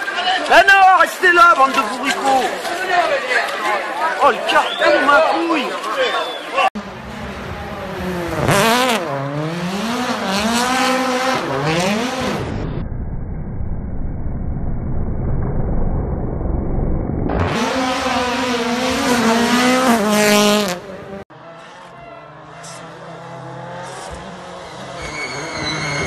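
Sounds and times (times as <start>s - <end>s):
rally car engines revving: 6.8s - 12.8s, 17.3s - 26.0s.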